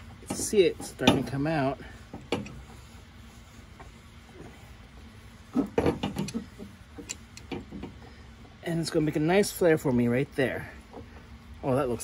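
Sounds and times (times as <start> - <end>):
metallic clicks of flaring tool: 7.0 - 7.6.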